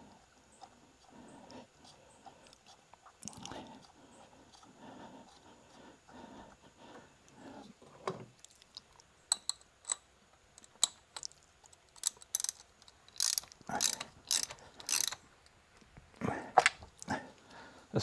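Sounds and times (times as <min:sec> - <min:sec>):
ratchet wrench clicking: 0:12.0 - 0:15.2.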